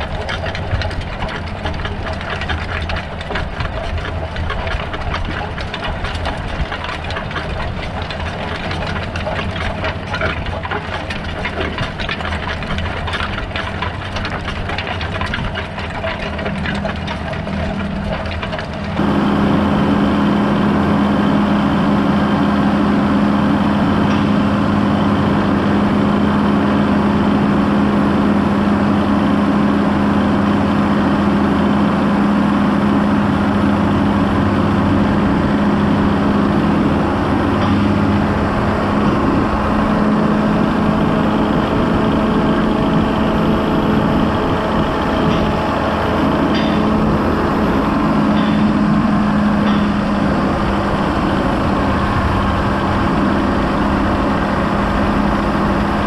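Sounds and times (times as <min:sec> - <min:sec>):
dense fine rattle: 0:00.0 - 0:19.2, 0:42.2 - 0:51.7
tractor diesel engine under load: 0:00.0 - 0:56.0.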